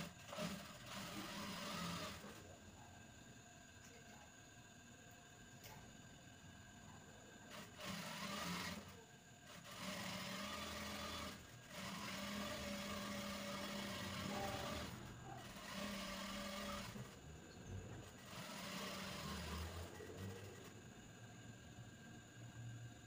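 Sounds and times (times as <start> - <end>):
sewing machine stitching: 0.0 - 2.6, 7.4 - 20.9.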